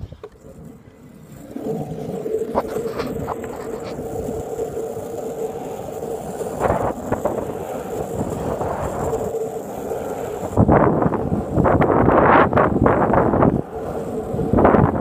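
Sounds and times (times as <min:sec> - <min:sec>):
longboard wheels rolling on asphalt: 0:00.0 - 0:15.0
wind buffeting microphone: 0:01.4 - 0:15.0.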